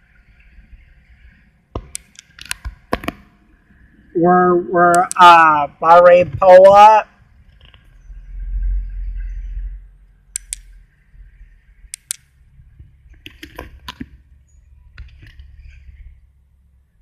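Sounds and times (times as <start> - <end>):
phone handling clicks and knocks: 1.8 - 3.2
low rumble: 3.4 - 13.1.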